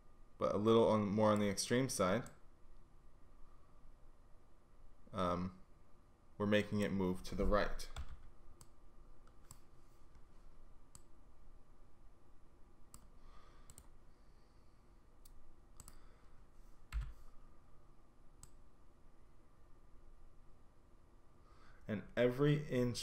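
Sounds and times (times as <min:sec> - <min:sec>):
computer mouse clicks: 0:07.9 - 0:10.3, 0:10.9 - 0:11.1, 0:12.9 - 0:14.0, 0:15.2 - 0:16.1, 0:18.4 - 0:18.6.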